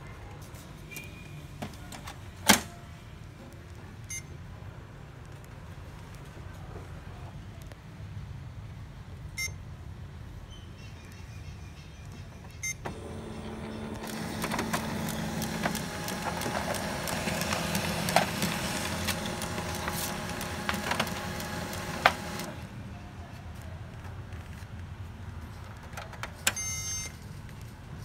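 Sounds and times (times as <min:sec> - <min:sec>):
printer mechanism humming: 0:12.8 - 0:22.8
printer clicks and rattles: 0:12.9 - 0:22.7
short touchscreen beeps: 0:26.6 - 0:27.1.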